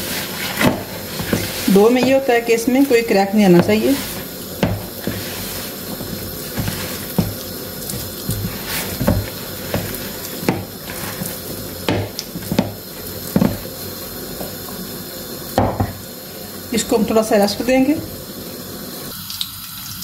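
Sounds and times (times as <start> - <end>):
steady hiss: 0.0 - 19.4
dough knocking against plastic bowl: 4.6 - 5.4, 6.0 - 13.7.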